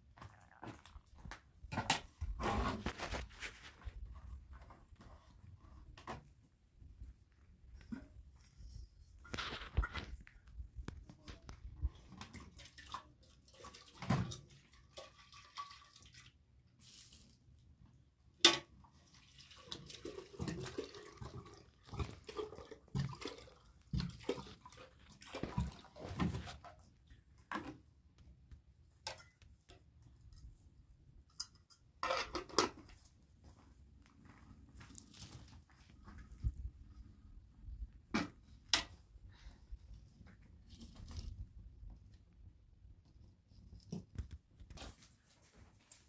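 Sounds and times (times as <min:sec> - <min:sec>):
water pouring into kettle: 0:19.0 - 0:25.6.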